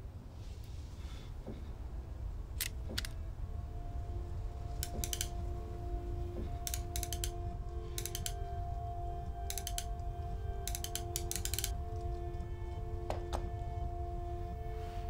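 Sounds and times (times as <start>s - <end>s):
revolver cylinder clicking: 4.8s - 5.4s, 6.6s - 8.5s, 9.4s - 12.1s.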